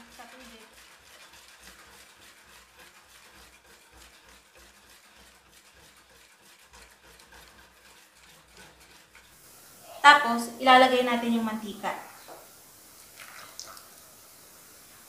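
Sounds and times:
spoon stirring sugar in water: 0.0s - 9.8s.

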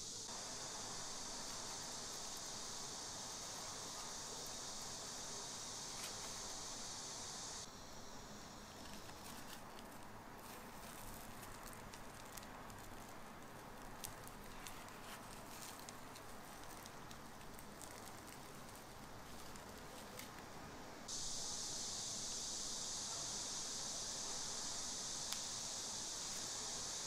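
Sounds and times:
loud steady hiss: 0.0s - 27.0s
frying oil crackling: 9.5s - 19.8s.

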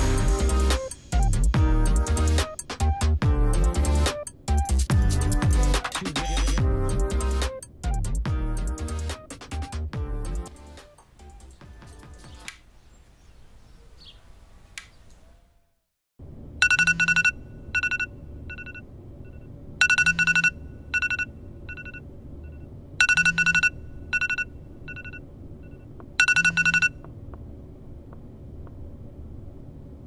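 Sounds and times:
smartphone alarm beeps: 16.6s - 27.0s.

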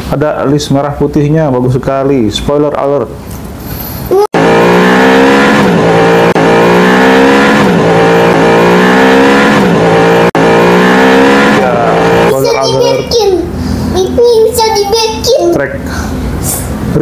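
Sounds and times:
race car engine accelerating: 4.3s - 14.2s.

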